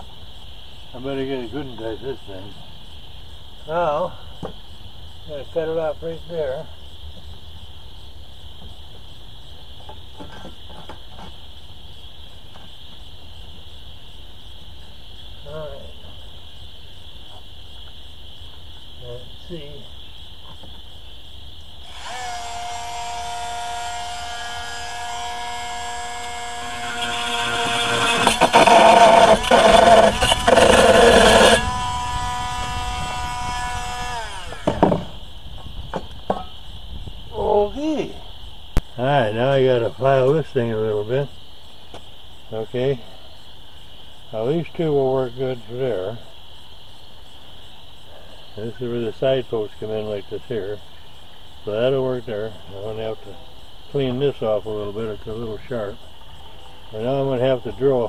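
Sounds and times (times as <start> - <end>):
crickets chirping: 0.0 - 58.0
rotary tool grinding whine: 21.8 - 35.3.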